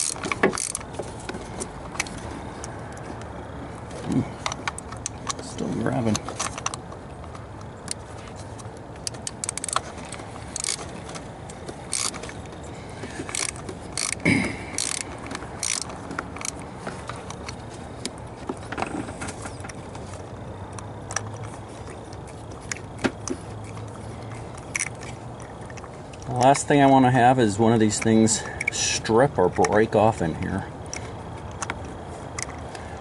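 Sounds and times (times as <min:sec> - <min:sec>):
socket ratchet clicking: 0:00.0 - 0:00.9, 0:09.0 - 0:12.4, 0:13.2 - 0:17.6, 0:24.6 - 0:25.1.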